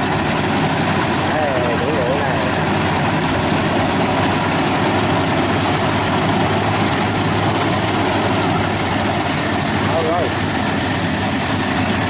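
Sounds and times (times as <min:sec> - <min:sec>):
combine harvester engine running: 0:00.0 - 0:12.0.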